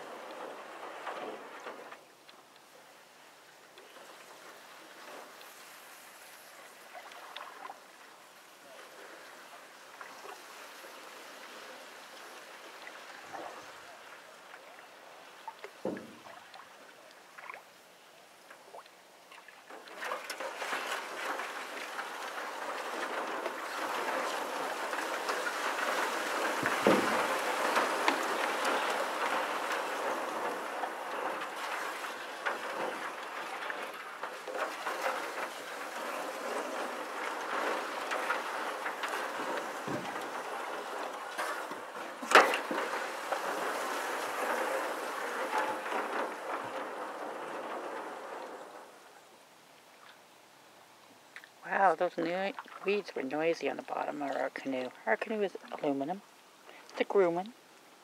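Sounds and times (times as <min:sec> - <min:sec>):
reeds scraping canoe hull: 0:00.0 - 0:02.1, 0:18.6 - 0:49.3, 0:51.6 - 0:57.4.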